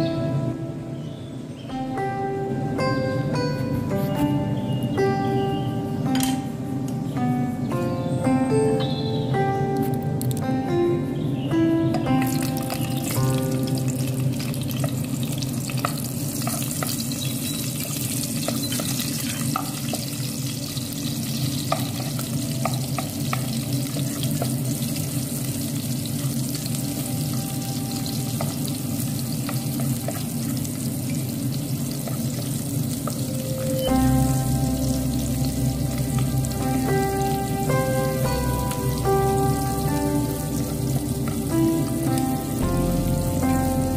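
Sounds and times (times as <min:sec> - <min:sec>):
onions sizzling in oil: 0:12.2 - 0:43.9
low hum: 0:33.4 - 0:43.9.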